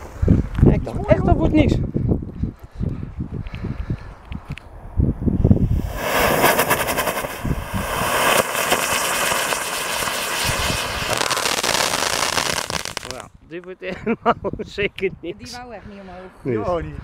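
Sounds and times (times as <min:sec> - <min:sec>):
firework rushing hiss with crackling: 0:05.5 - 0:13.2.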